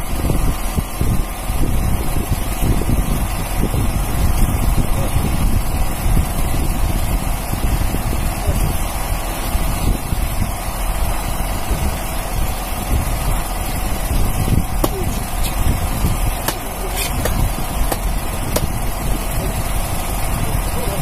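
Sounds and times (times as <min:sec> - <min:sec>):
boat engine running: 0:00.0 - 0:21.0
wind noise on microphone: 0:00.0 - 0:21.0
knocks against hull: 0:16.4 - 0:18.7.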